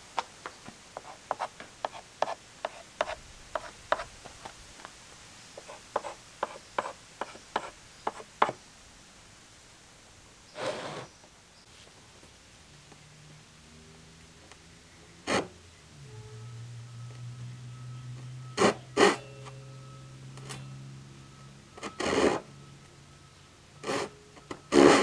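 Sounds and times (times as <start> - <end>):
pencil tapping and scratching wood: 1.0 - 4.1, 5.6 - 8.6
scraping rub on board: 1.0 - 4.1.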